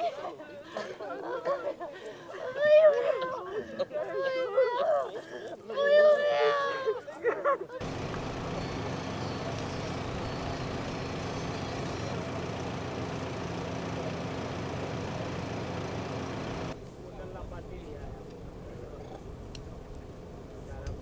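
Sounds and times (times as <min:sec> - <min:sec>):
truck engine idling: 0:07.8 - 0:16.9.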